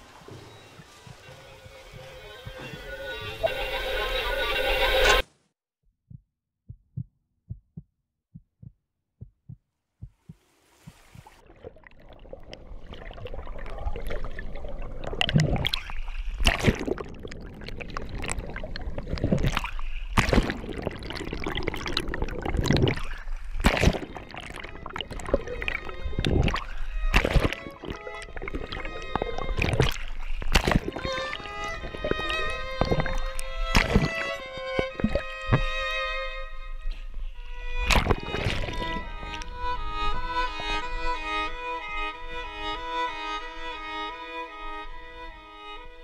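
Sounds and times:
water splashing and churning: 0.0s - 5.0s, 10.3s - 45.1s
heartbeat thumps: 5.9s - 11.4s.

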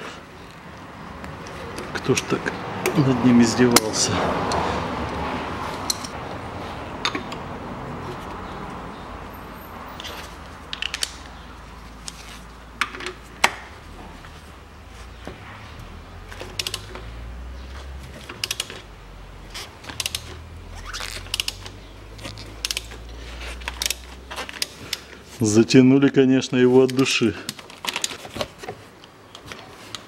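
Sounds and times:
ratchet handle clicking: 16.5s - 17.0s, 18.3s - 18.8s, 19.9s - 21.8s, 22.6s - 22.9s.

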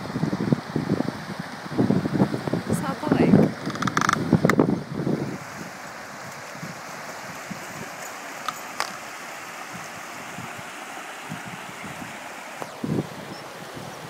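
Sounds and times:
stream rushing over rocks: 0.0s - 14.0s
sharp clicks: 3.6s - 4.6s.

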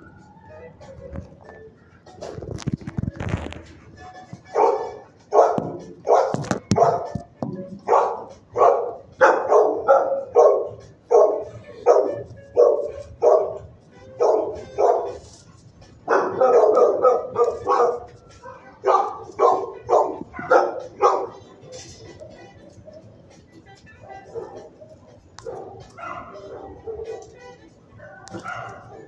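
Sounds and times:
dog barking: 4.5s - 7.1s, 7.8s - 15.4s, 16.0s - 23.1s, 24.0s - 27.4s, 28.0s - 29.0s
knocks: 6.6s - 7.9s.

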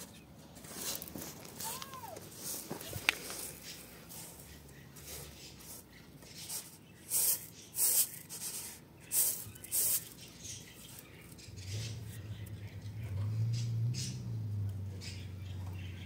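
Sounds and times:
rice rustling on a metal tray: 0.0s - 11.9s.

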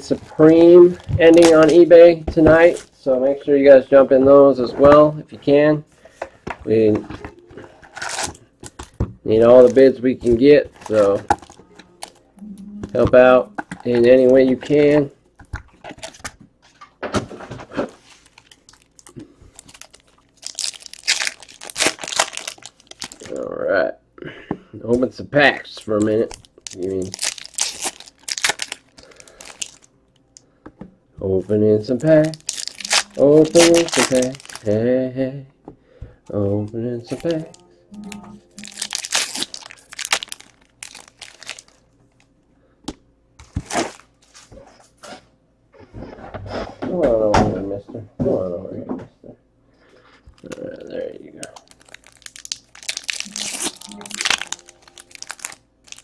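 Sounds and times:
foil wrappers crinkling and tearing: 0.0s - 1.9s, 7.8s - 12.2s, 17.7s - 23.5s, 25.6s - 29.9s, 31.4s - 34.9s, 36.4s - 42.2s, 43.4s - 44.5s, 51.4s - 56.0s.

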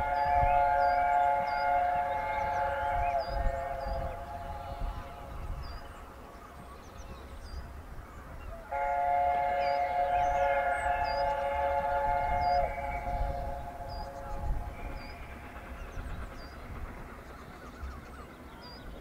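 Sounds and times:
steam locomotive chime whistle: 0.0s - 5.8s, 8.6s - 17.1s
birds chirping: 0.0s - 19.0s
low rumble of train: 0.0s - 19.0s.

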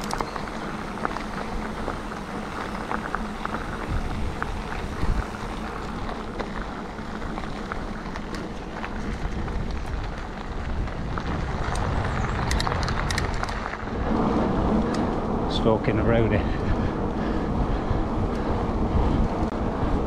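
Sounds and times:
small ticks and rattles: 0.0s - 15.1s
bike tyres crunching on gravel: 0.0s - 20.0s.

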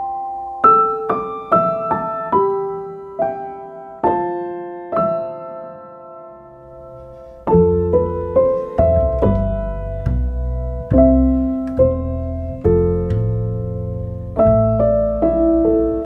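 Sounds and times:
slow solo piano notes: 0.0s - 16.0s.

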